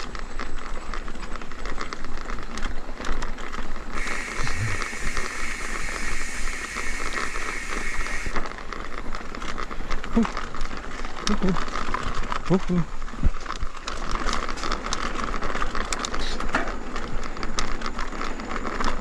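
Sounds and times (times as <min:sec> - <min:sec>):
mountain bike rattling over rough track: 0:00.0 - 0:19.0
steady high hiss: 0:04.0 - 0:08.4.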